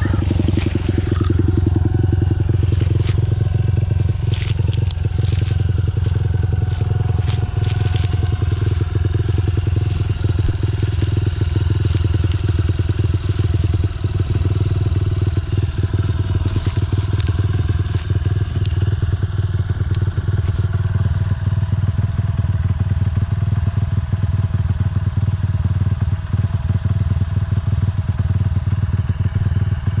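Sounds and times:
footsteps crunching dry stalks: 0.0 - 22.8, 29.2 - 30.0
motorcycle engine idling: 0.0 - 30.0.

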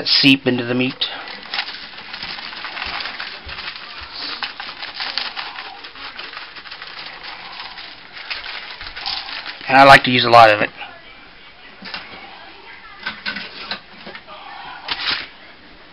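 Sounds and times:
seasoning shaker rattling onto foil: 1.0 - 10.5.

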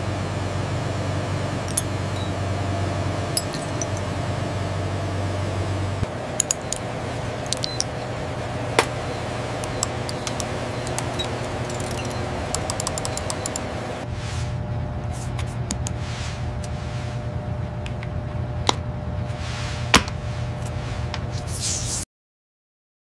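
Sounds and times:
machine hum: 0.0 - 21.6.

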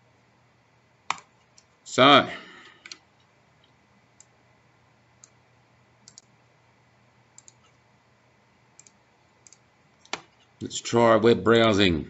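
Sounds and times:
computer mouse clicks: 1.1 - 1.7, 2.8 - 4.4, 5.2 - 5.4, 6.0 - 6.3, 7.4 - 7.8, 8.7 - 10.5.

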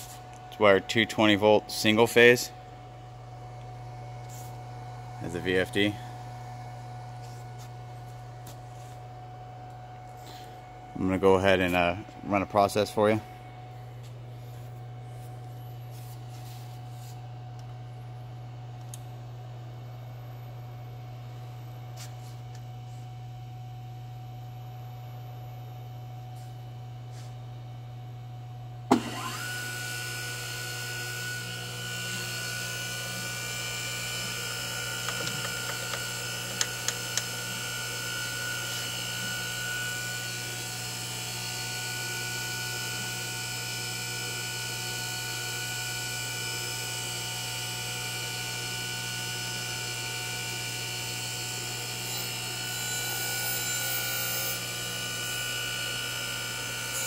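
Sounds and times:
grinder spindle whine: 0.0 - 21.3, 28.4 - 57.0
mains hum: 0.0 - 53.7
switch click: 35.1 - 37.3.

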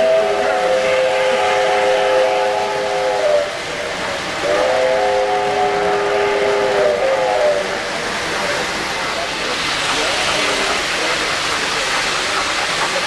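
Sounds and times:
model locomotive whistle chord: 0.0 - 3.5, 4.4 - 7.7
train wheels on track: 0.0 - 13.0.

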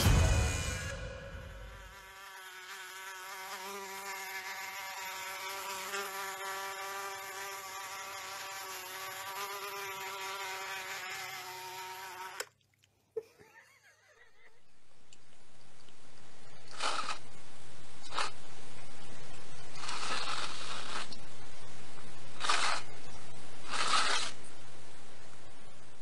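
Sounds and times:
fly buzz from phone speaker: 1.6 - 12.5, 22.4 - 22.9, 23.7 - 24.4.

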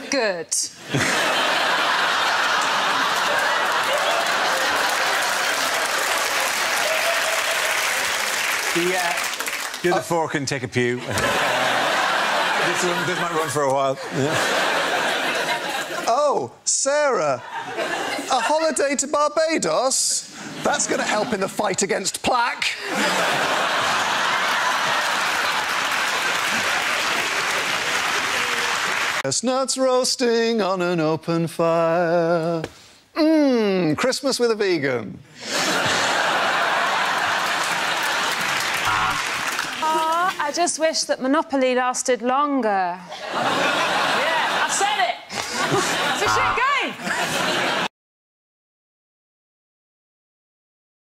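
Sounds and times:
studio audience applauding: 1.5 - 10.3, 23.0 - 29.3, 35.7 - 40.5, 43.8 - 46.9.

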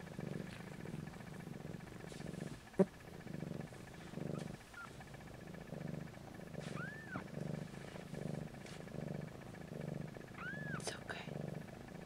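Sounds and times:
cat purring: 0.0 - 12.0
kitten squeaking: 6.7 - 7.2, 10.4 - 10.9.

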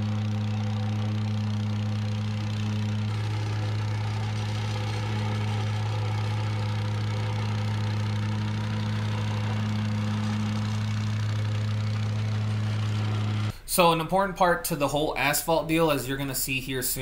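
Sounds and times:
plate compactor engine droning: 0.0 - 13.6.

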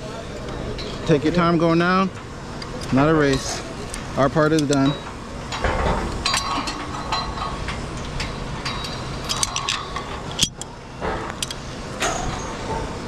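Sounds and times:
steady background noise: 0.0 - 13.0
metallic clinks on steel tower: 4.5 - 10.7.

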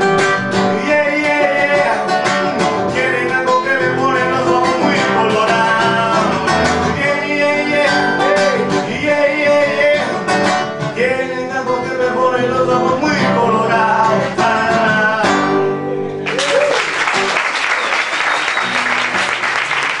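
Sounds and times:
person singing with guitar: 0.0 - 16.3
audience applauding: 16.2 - 20.0.

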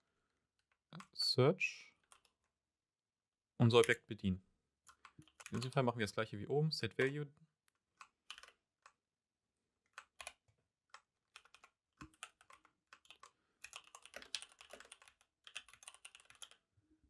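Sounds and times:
keyboard typing: 2.0 - 2.5, 4.9 - 6.0, 6.9 - 9.0, 9.9 - 16.7.

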